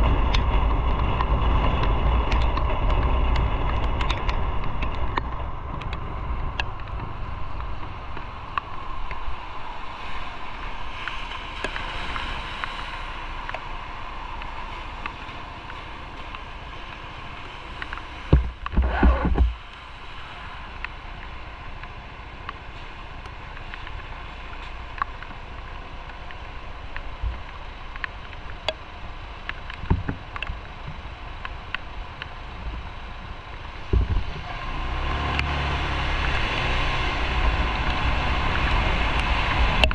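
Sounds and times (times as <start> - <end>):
wind and road noise: 0.0 - 39.9.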